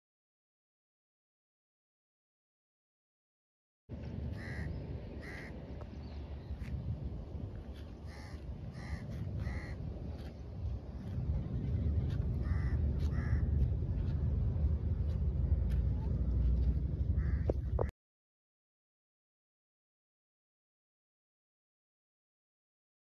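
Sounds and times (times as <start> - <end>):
wind rumble on microphone: 3.9 - 17.9
bird calling: 4.4 - 6.6, 8.0 - 9.8.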